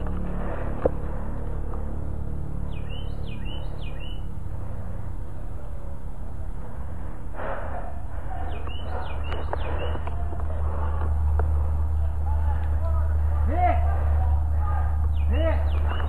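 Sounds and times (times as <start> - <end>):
steady low rumble: 0.0 - 16.0
songbird singing: 2.3 - 5.0, 8.4 - 12.2, 15.0 - 16.0.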